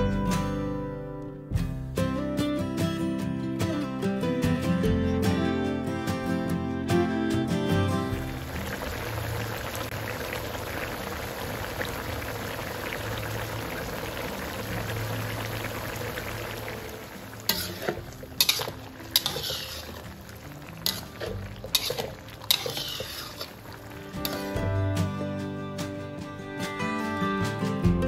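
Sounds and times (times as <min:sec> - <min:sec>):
thick sauce bubbling: 0:08.2 - 0:24.8
metal ladle scraping a pan: 0:15.6 - 0:24.8.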